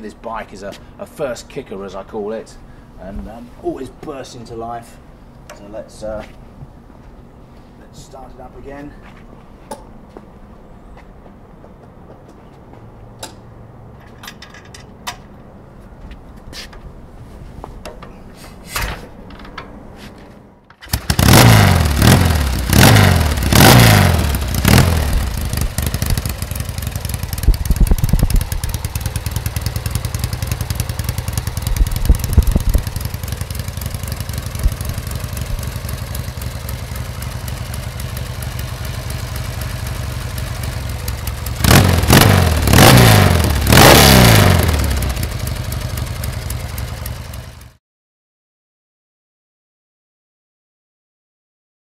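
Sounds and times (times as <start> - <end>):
motorcycle engine revving and idling: 20.9 - 47.8.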